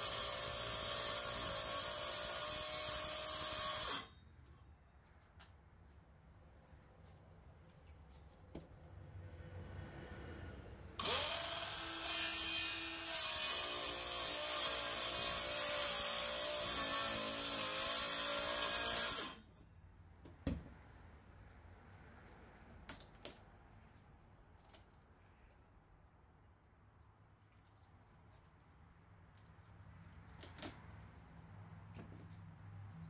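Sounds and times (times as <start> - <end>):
circular saw cutting plywood: 0.0 - 4.2, 11.0 - 19.5.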